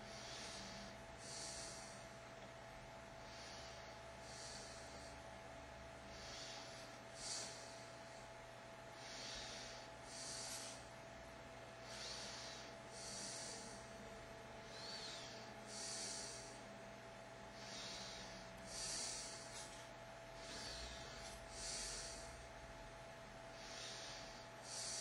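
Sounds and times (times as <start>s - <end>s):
person breathing through nose: 0.0s - 2.1s, 3.2s - 5.2s, 6.0s - 10.9s, 11.8s - 14.0s, 14.6s - 16.7s, 17.5s - 22.6s, 23.5s - 25.0s
faint hum: 0.0s - 25.0s.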